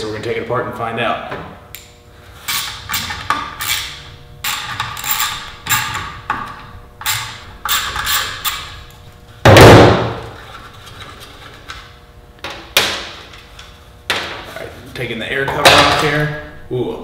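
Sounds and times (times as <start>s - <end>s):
hand ratchet rasping: 2.4s - 8.8s
ratchet clatter: 2.5s - 6.1s, 7.0s - 8.8s.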